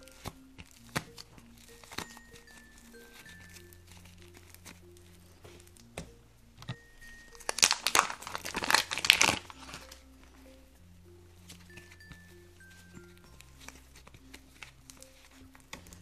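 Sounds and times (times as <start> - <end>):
plastic packet crinkling: 6.7 - 10.2, 11.4 - 16.0.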